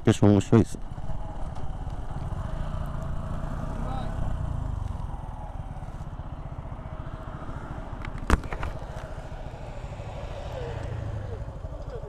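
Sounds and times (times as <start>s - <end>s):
motorcycle engine running: 0.5s - 12.0s.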